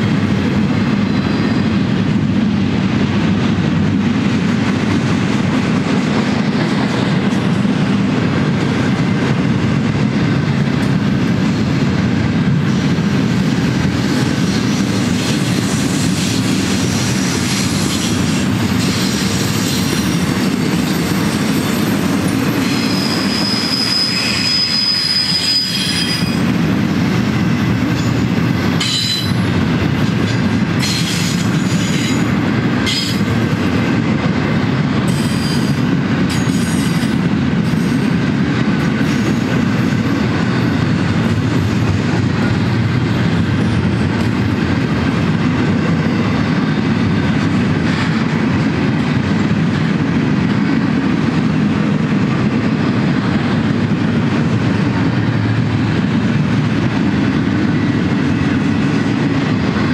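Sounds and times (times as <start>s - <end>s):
steel wheels rumbling on rail: 0.0s - 59.9s
train cars rolling past: 0.0s - 59.9s
high wheel squeal: 15.6s - 26.6s, 28.8s - 29.4s.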